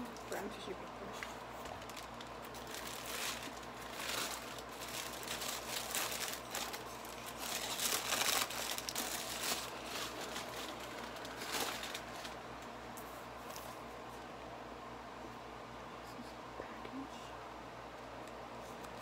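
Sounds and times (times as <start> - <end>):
paper crinkling and rustling: 1.1 - 13.8.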